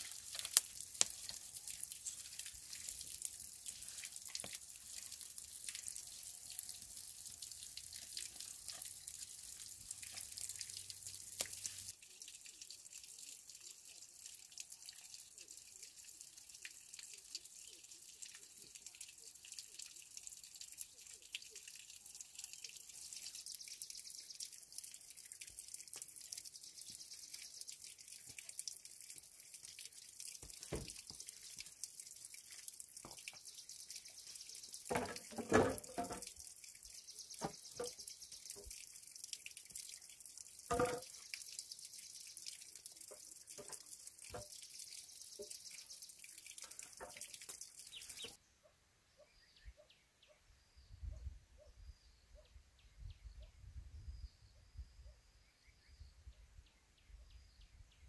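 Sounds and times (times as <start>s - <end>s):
bamboo tubes knocking and clacking: 34.9s - 36.4s, 40.7s - 41.2s, 46.6s - 47.6s.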